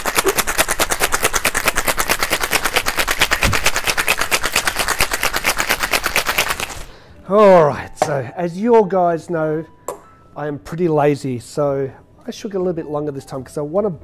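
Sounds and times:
ice rattling in cocktail shaker: 0.0s - 6.9s.

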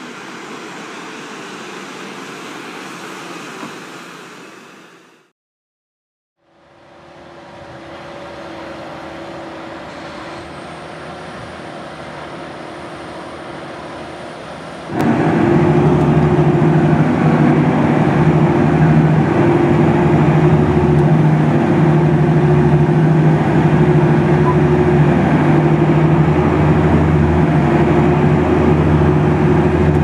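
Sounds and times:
tractor diesel engine under load: 6.9s - 30.0s.

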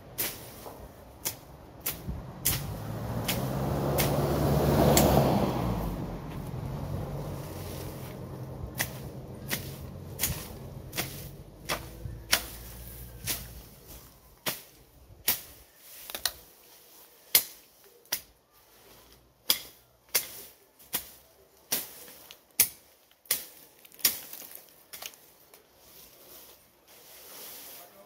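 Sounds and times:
sharp chopping strikes on weeds: 0.2s - 5.4s, 7.4s - 15.6s, 17.3s - 18.3s, 19.4s - 24.4s.

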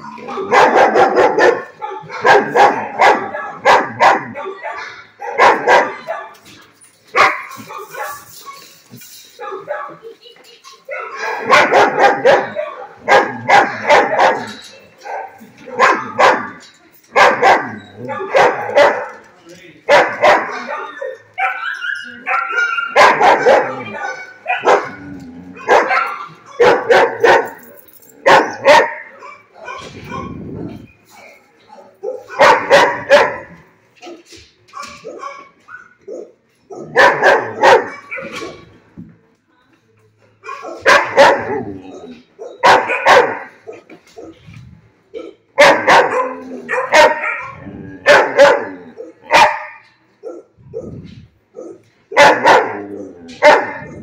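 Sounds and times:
young dog barking: 0.0s - 6.3s, 10.9s - 19.1s, 19.9s - 27.6s, 28.3s - 30.4s, 32.0s - 33.6s, 36.7s - 38.5s, 40.4s - 44.4s, 45.2s - 54.0s.

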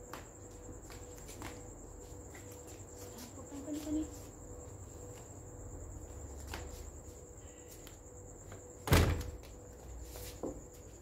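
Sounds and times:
cricket trill: 0.0s - 11.0s
loud thud: 8.9s - 9.3s.

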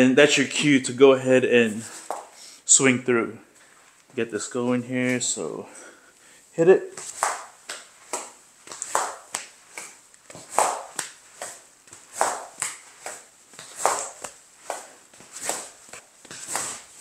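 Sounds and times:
rope slapping against back: 2.0s - 2.4s, 6.9s - 17.0s
rope swishing through air: 6.9s - 17.0s.

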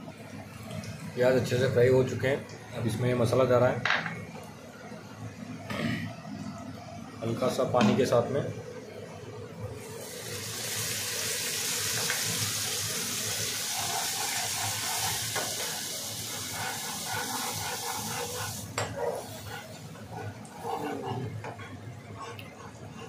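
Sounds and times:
food sizzling in a pan: 9.8s - 21.4s.

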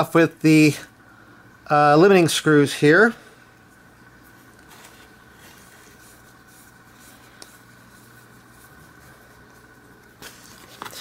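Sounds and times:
faint scratchy handling: 3.7s - 11.0s.

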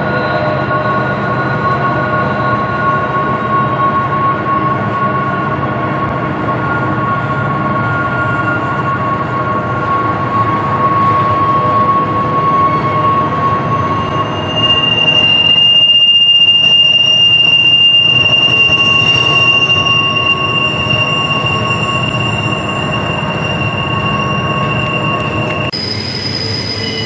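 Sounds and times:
rumble of train wheels: 0.0s - 27.0s
wheel flanges squealing: 0.0s - 27.0s.

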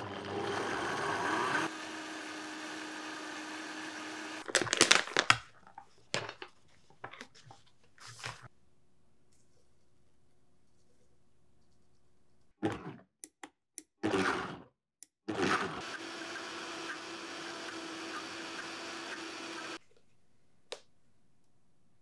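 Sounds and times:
blender motor whirring: 0.0s - 4.9s, 14.0s - 14.6s, 15.3s - 19.8s.

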